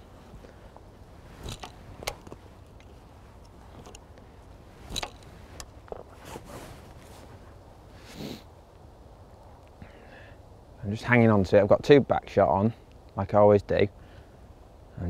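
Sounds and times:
soft rustle: 0.0 - 8.9
faint steady hiss: 0.0 - 15.0.

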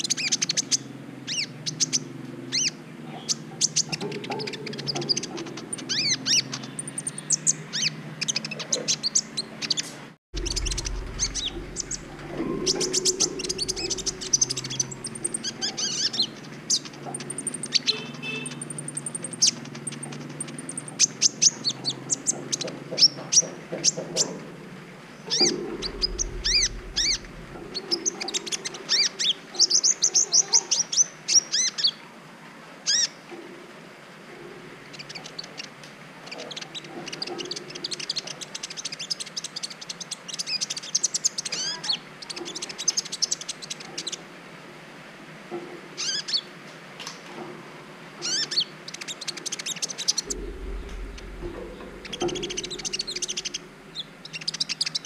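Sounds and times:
sunbird chirping and trilling: 0.0 - 9.8, 10.4 - 22.7, 25.1 - 32.0, 48.2 - 55.0.

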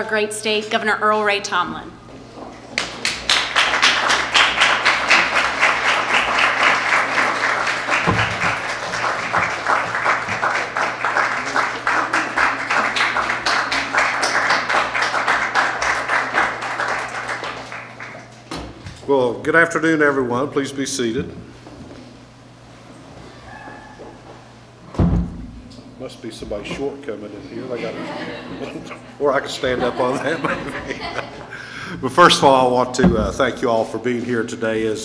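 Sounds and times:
audience applauding: 2.7 - 18.4.

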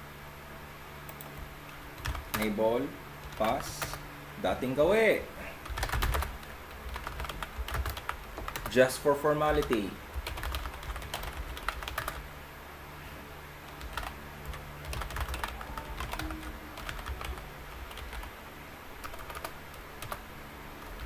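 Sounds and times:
low steady hum: 0.0 - 21.0
typing on keyboard: 2.0 - 2.5, 5.6 - 8.7, 9.5 - 12.2, 13.7 - 18.3, 19.0 - 20.2.

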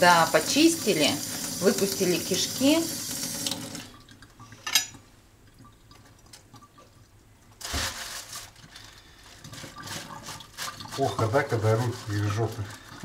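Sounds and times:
running water rushing: 0.0 - 4.3
water dripping and splashing: 0.0 - 7.7, 9.3 - 13.0.

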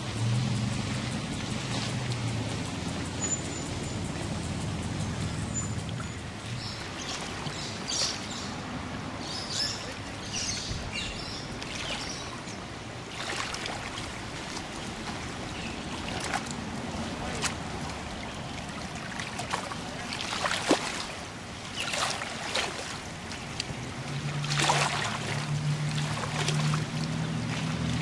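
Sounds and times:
small water splashes: 0.0 - 28.0
water lapping and trickling: 0.0 - 28.0
bird chirps: 3.2 - 4.3, 5.0 - 8.5.

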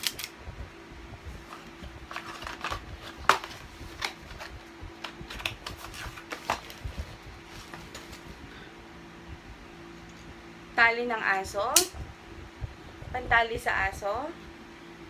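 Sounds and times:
packaging clicks and rustling: 1.5 - 8.2.

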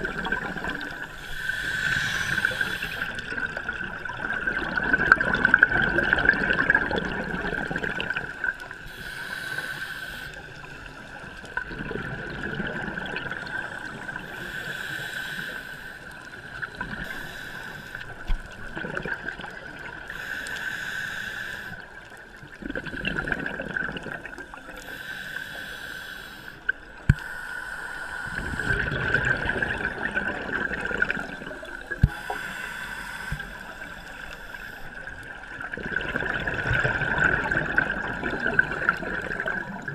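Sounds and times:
gurgling exhaled bubbles: 0.0 - 8.8, 10.6 - 14.4, 18.1 - 20.1, 22.4 - 24.8, 28.3 - 32.5, 34.9 - 39.9
regulator hissing inhale: 0.3 - 3.4, 8.8 - 11.2, 13.9 - 18.6, 20.0 - 22.5, 24.5 - 29.2, 31.6 - 35.4.

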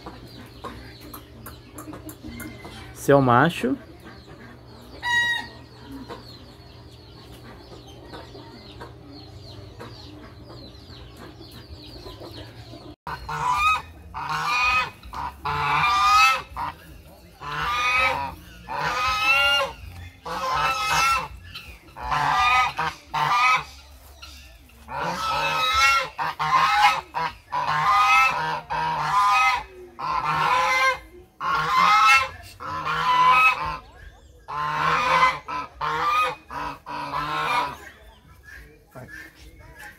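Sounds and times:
geese honking: 2.2 - 8.1, 9.0 - 39.9.

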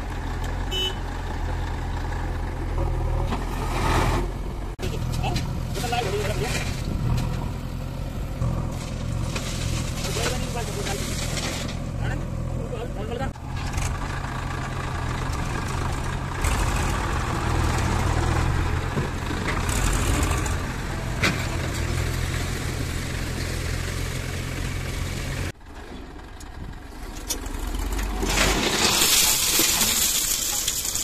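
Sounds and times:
tractor diesel engine running: 0.0 - 31.0
stones sliding out of trolley: 5.4 - 7.5, 8.5 - 11.9, 27.3 - 31.0.

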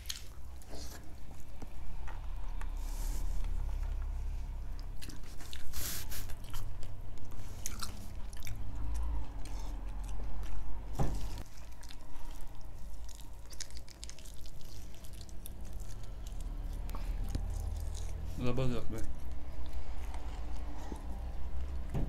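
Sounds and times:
chewing and biting chicken: 4.7 - 21.9
meat tearing squishes: 11.4 - 18.4.

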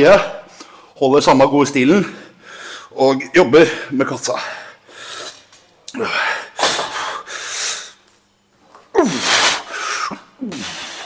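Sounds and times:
man grunting: 5.9 - 6.5
man breathing forcefully: 6.0 - 8.0, 9.0 - 11.0.

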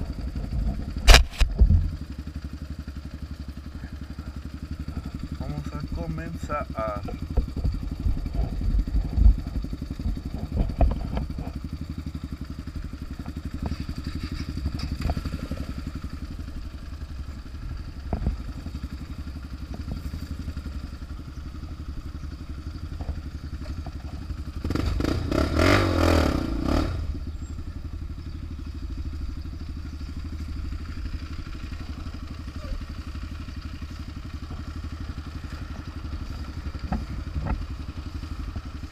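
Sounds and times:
motorcycle engine idling: 0.0 - 38.9.

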